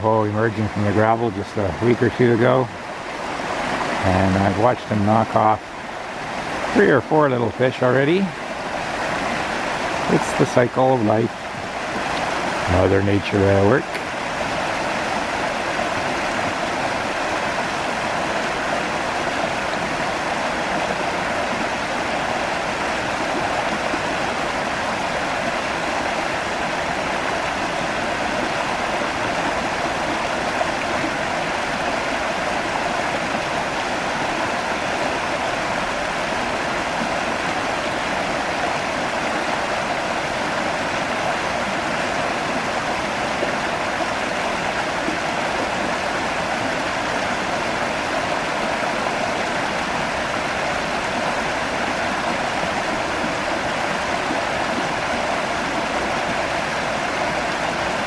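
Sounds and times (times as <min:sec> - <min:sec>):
creek water rushing over stones: 0:00.0 - 0:58.0.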